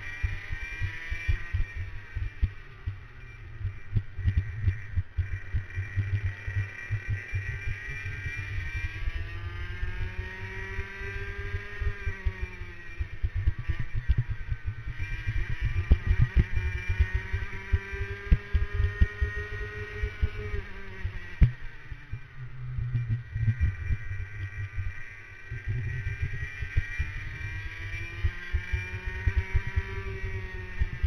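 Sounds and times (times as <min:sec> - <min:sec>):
kart engine accelerating: 0:00.0 - 0:31.0.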